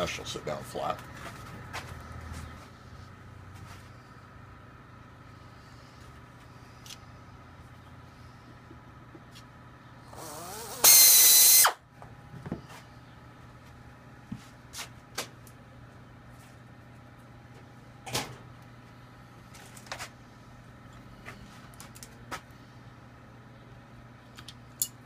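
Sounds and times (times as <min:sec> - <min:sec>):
air drill whining through metal: 0:10.1 - 0:11.8.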